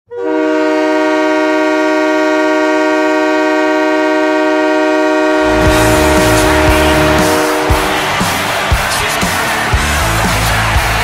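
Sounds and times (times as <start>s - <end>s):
goal horn chord: 0.1s - 9.4s
music with drum hits: 5.5s - 11.0s.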